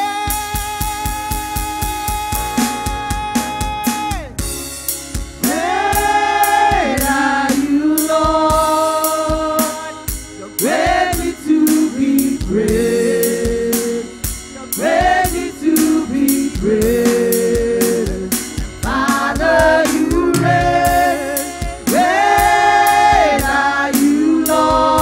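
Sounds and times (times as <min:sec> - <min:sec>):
drum kit beat: 0:00.0 - 0:25.0
women singing gospel in harmony: 0:05.4 - 0:25.0.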